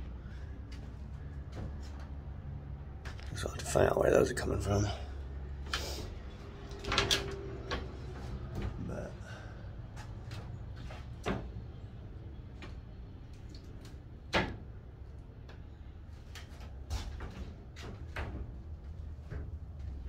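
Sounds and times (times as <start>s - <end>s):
knocks and creaks on wood: 0.7s - 3.3s, 9.9s - 11.8s, 16.3s - 20.0s.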